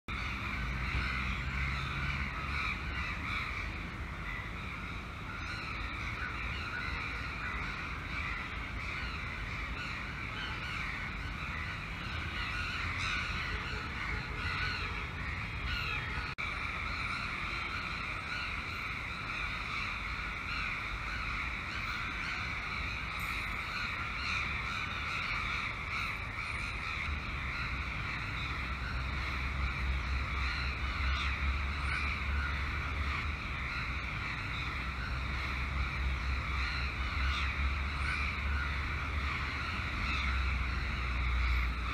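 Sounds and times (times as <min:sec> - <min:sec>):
crows cawing: 0:00.1 - 0:41.9
wind rumble on microphone: 0:00.1 - 0:41.9.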